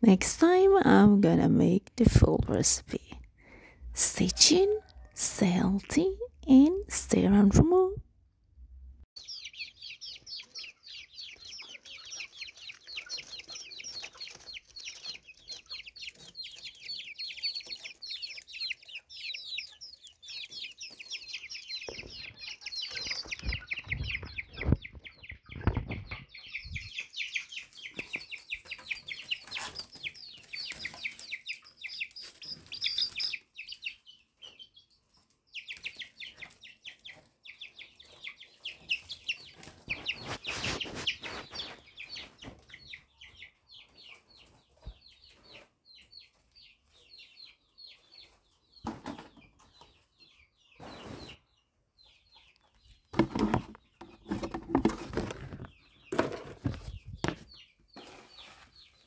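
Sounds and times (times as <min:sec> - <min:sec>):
birds chirping: 0:09.2 - 0:59.0.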